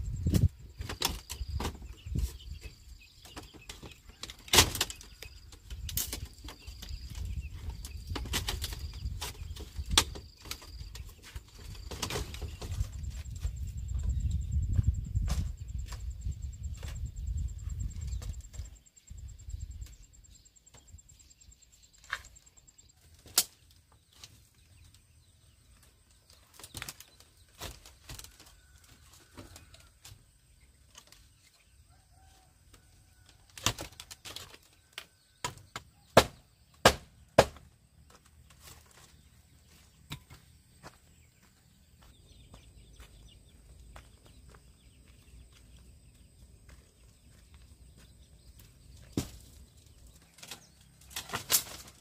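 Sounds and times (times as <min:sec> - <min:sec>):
bamboo rustling: 0:00.2 - 0:13.8, 0:21.9 - 0:41.5, 0:48.6 - 0:52.0
bamboo slats knocking: 0:35.4 - 0:37.7.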